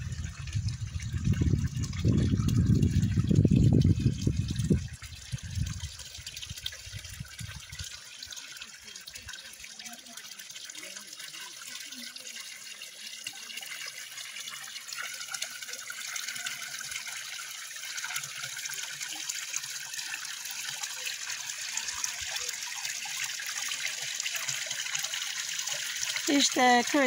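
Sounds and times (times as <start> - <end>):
fountain water splashing into trough: 0.0 - 27.0.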